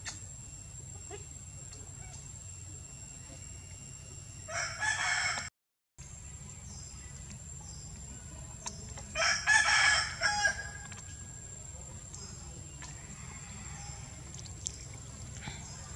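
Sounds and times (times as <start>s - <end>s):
rooster crowing: 4.5s - 5.5s, 9.2s - 10.9s.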